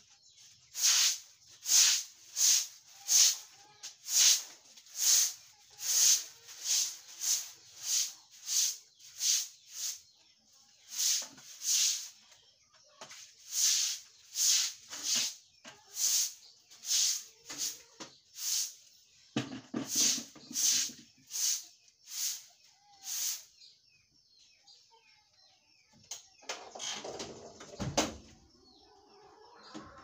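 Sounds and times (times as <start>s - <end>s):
broom swishing on wet concrete: 0.4s - 12.4s, 13.1s - 19.1s, 19.8s - 23.6s.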